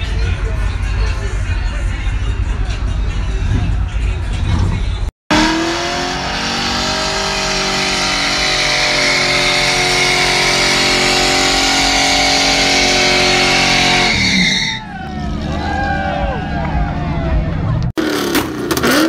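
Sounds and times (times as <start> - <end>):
car engine revving high: 5.3 - 14.5, 15.2 - 19.0.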